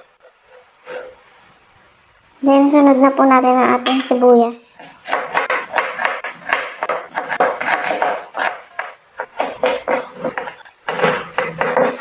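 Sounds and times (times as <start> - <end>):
knife chopping onion on cutting board: 4.8 - 12.0.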